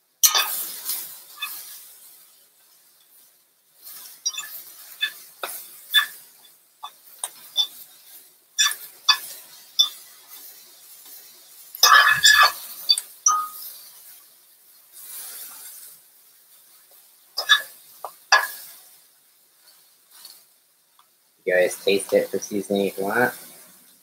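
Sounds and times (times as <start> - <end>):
faint sizzle: 0.0 - 24.0
fork clinking and scraping skillet: 0.2 - 2.2, 3.8 - 14.2, 15.0 - 16.0, 16.6 - 19.0.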